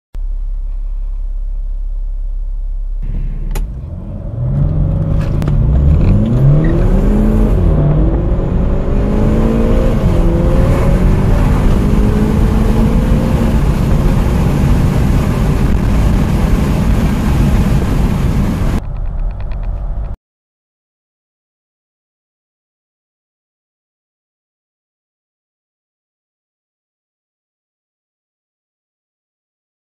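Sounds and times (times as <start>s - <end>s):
car engine revving through gears: 3.0s - 18.8s.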